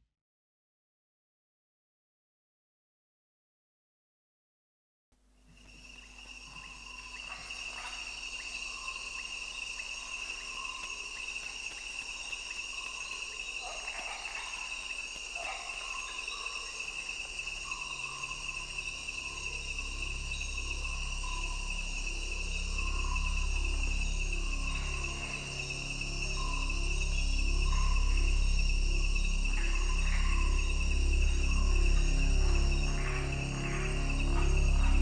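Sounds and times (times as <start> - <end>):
crickets chirping: 5.4 - 35.0
low electronic drone: 15.8 - 35.0
pulsing bass: 17.3 - 35.0.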